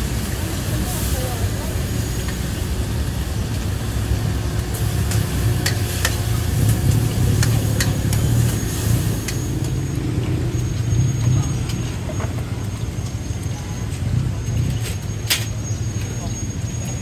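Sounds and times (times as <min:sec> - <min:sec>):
low traffic rumble: 0:00.0 - 0:17.0.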